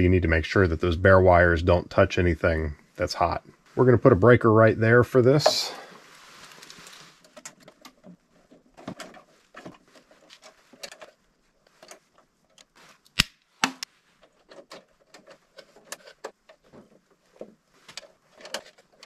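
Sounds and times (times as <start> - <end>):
wires clicking and rustling: 5.3 - 13.3, 14.1 - 19.0.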